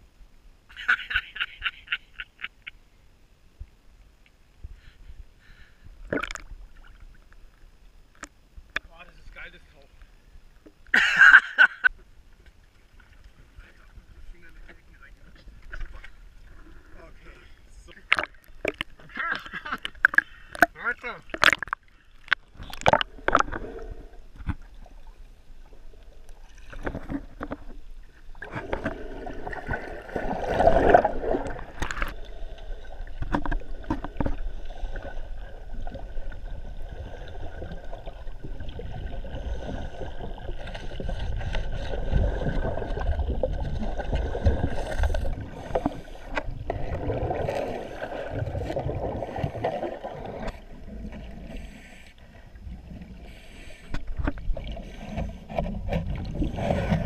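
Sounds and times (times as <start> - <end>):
underwater bubbles gurgling: 21.3 - 57.0.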